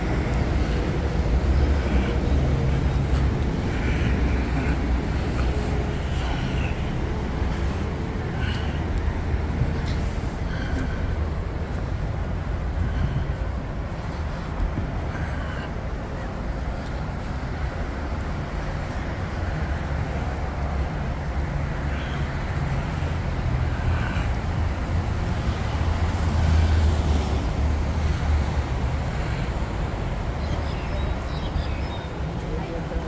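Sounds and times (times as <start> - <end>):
distant road traffic rumble: 0.0 - 33.0.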